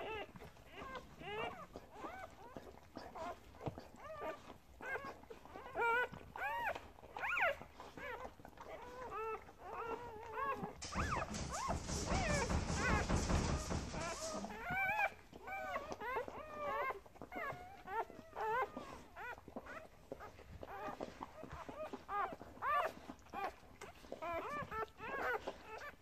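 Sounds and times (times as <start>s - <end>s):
puppy whimpering: 0.0s - 26.0s
rustling: 10.8s - 15.1s.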